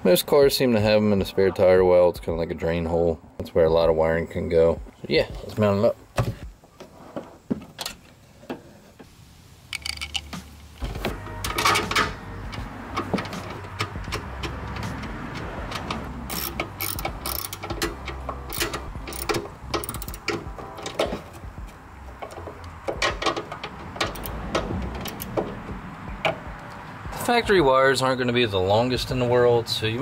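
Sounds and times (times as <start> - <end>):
hand ratchet clicking: 9.7 - 21.4, 22.1 - 25.5.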